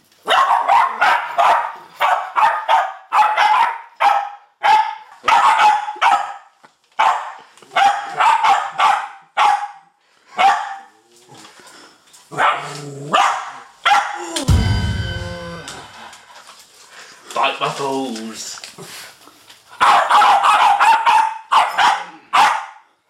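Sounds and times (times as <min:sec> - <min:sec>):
dogs barking: 0:00.2 - 0:11.0, 0:12.3 - 0:14.2, 0:19.7 - 0:22.9.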